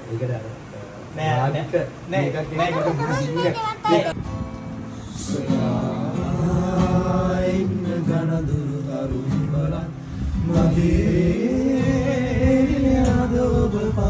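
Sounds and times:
men singing together: 5.0 - 14.0.

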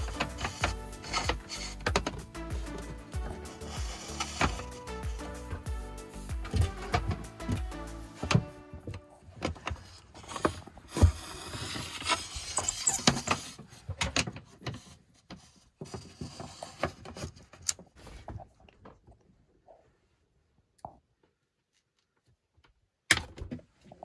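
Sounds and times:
scraping: 0.0 - 5.3
knocks and clicks: 0.0 - 9.7.

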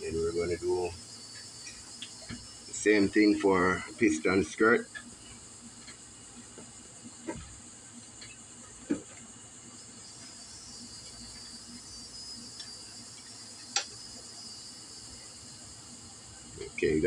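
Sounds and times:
steady high hiss: 0.0 - 17.0.

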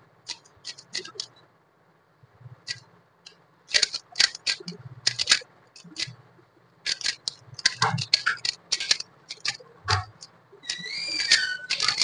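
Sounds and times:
puzzle cube clicking: 0.3 - 1.3, 3.7 - 6.2, 6.9 - 12.0.

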